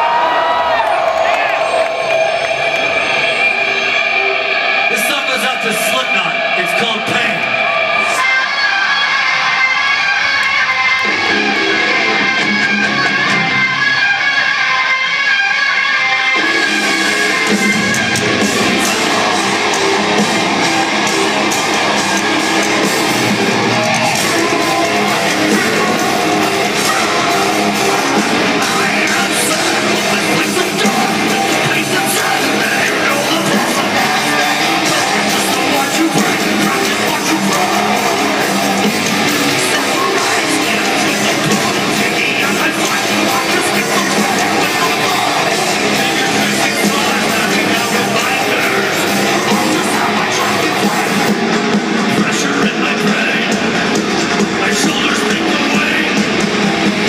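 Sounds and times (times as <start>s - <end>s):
drums: 0.0s - 57.0s
electric guitars: 0.0s - 57.0s
bass guitar: 6.5s - 57.0s
person singing: 16.1s - 57.0s.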